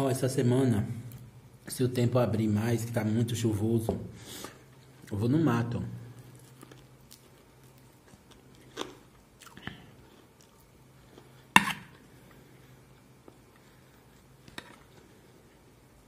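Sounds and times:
chewing crispy chicken: 6.1s - 15.6s.

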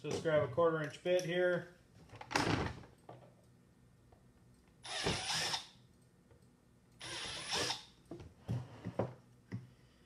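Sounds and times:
cordless drill drilling plastic: 4.8s - 5.7s, 7.0s - 7.9s.

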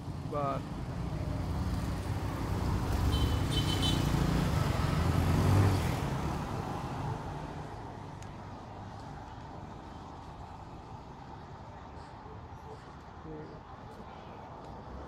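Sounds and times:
vehicle engine passing by: 1.3s - 7.8s.

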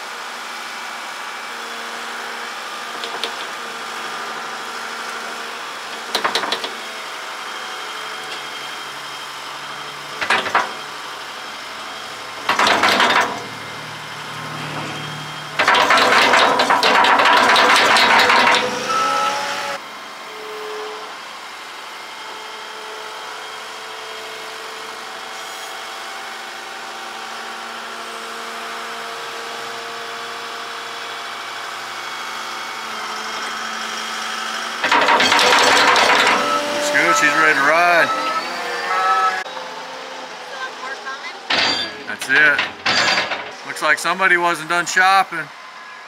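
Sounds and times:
loader engine running: 1.6s - 20.2s, 31.2s - 46.0s.

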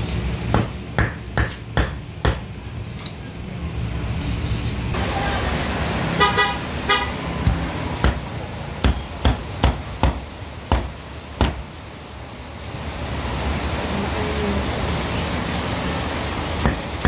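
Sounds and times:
cleaver chopping on wooden block: 0.5s - 2.4s, 7.4s - 11.6s.

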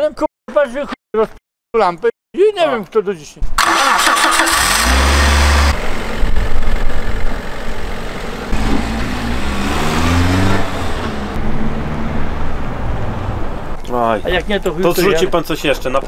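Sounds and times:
truck engine revving: 3.6s - 13.8s.

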